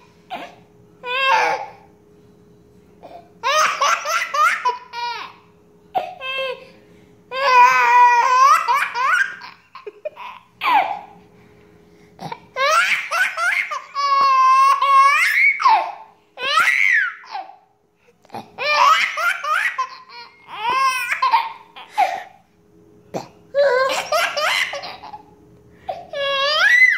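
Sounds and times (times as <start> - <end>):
baby laughing: 3.4 - 5.4, 7.5 - 11.1, 12.3 - 17.6, 18.4 - 22.4, 23.6 - 25.3.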